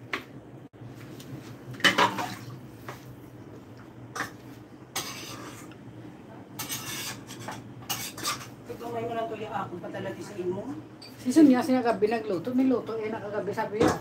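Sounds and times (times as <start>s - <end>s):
dishes and utensils clattering: 1.8s - 2.4s, 4.1s - 5.8s, 6.6s - 8.6s.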